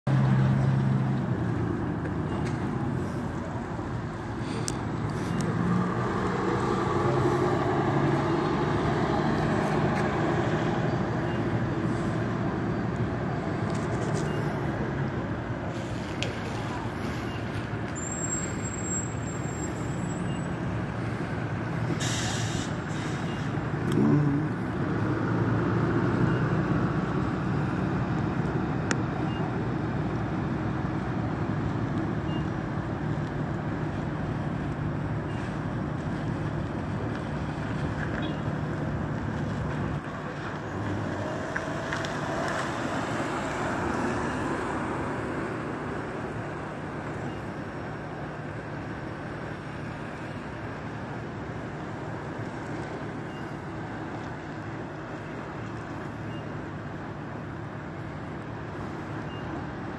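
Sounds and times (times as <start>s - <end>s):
traffic noise: 0.0s - 59.9s
vehicle engines idling: 0.1s - 59.9s
short hiss: 22.0s - 23.4s.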